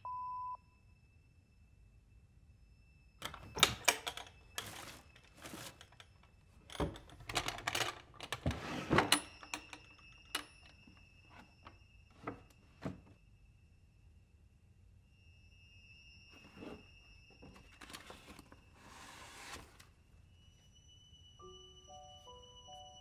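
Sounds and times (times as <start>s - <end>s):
rummaging through wooden drawer: 3.2s - 6.0s, 6.8s - 9.6s.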